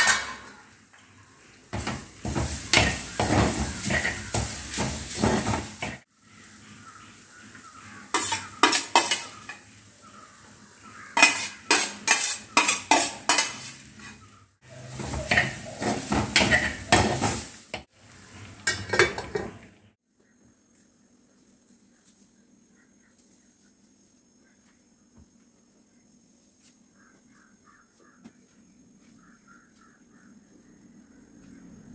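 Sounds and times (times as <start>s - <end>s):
faint sizzle of stir-fry: 0.5s - 19.7s
metal spoon scraping clay pot: 8.1s - 9.6s, 11.2s - 14.2s.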